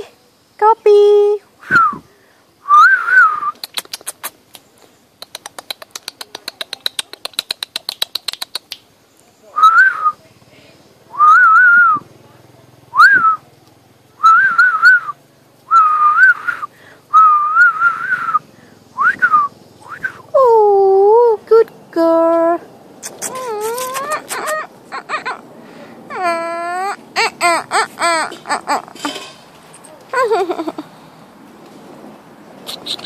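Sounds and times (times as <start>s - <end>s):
person whistling: 1.6s - 2.0s, 2.7s - 3.6s, 13.0s - 13.4s, 14.2s - 15.1s, 15.7s - 18.4s, 19.0s - 20.2s
puppy whining: 23.0s - 25.5s, 26.1s - 30.8s.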